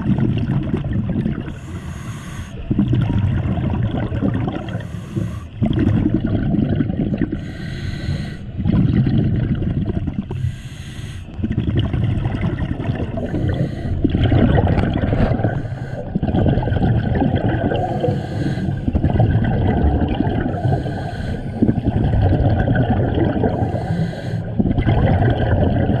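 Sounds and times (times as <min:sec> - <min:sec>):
bubbles: 0:00.0 - 0:01.8, 0:02.6 - 0:10.6, 0:11.2 - 0:26.0
diver breathing through regulator: 0:01.5 - 0:02.8, 0:04.6 - 0:05.7, 0:07.2 - 0:08.6, 0:10.2 - 0:11.4, 0:13.0 - 0:16.7, 0:17.4 - 0:19.3, 0:20.3 - 0:22.1, 0:22.8 - 0:24.7
low rumble: 0:11.3 - 0:23.7.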